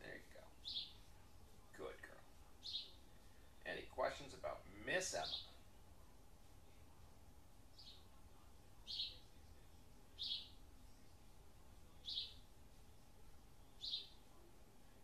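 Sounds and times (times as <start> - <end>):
bird chirping: 0.0 - 1.2, 2.1 - 5.6, 7.7 - 9.4, 10.1 - 11.1, 11.9 - 12.5, 13.6 - 14.5
faint low room hum: 0.0 - 15.0.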